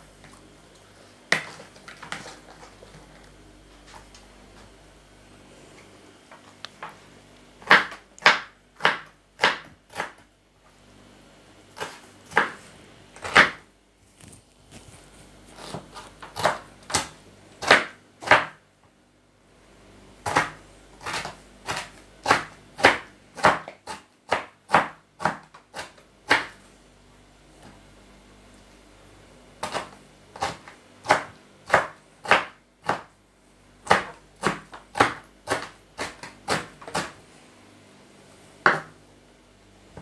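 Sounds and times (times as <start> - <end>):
knife chopping on wooden board: 7.6 - 10.2, 11.8 - 12.6, 13.2 - 13.6, 15.6 - 18.6, 20.3 - 26.6, 29.6 - 33.1, 33.8 - 37.2, 38.6 - 39.0.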